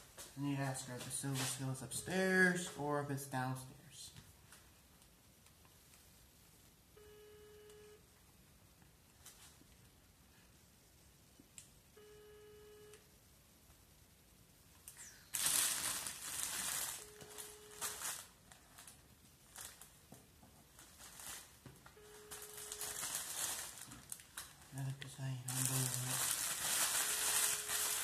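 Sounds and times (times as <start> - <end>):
plastic crinkling and rustling: 0.2 - 2.8, 9.2 - 9.8, 14.9 - 28.0
phone ringing tone beeps: 7.0 - 8.0, 12.0 - 13.0, 16.9 - 18.2, 22.0 - 23.5, 26.9 - 28.0.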